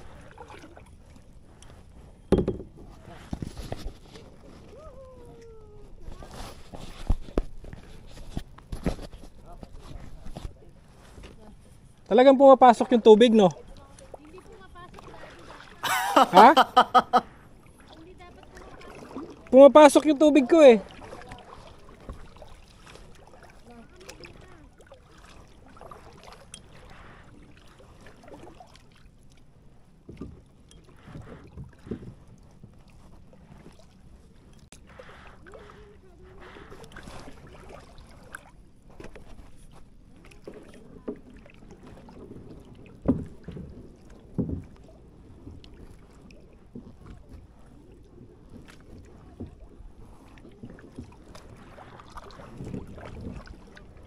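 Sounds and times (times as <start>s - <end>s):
paddle strokes and splashing water: 0.0s - 54.0s
short knocks on kayak: 2.3s - 3.5s, 43.0s - 44.8s.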